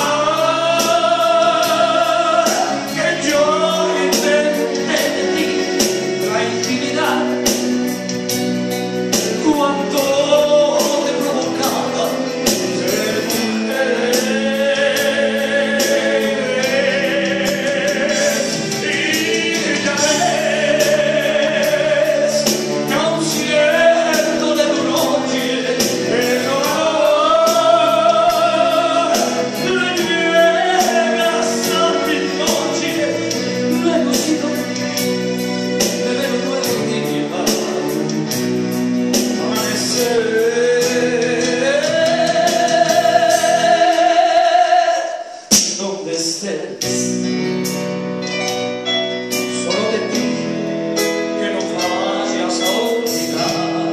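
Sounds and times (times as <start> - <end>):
man singing with vibrato: 0.0 - 47.5, 49.2 - 53.9
electronic keyboard chords: 46.8 - 53.9.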